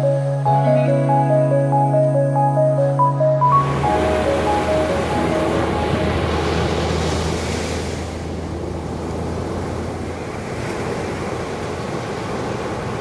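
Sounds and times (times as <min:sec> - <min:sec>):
music with low tones: 0:00.0 - 0:10.2
ocean surf on beach: 0:03.4 - 0:13.0.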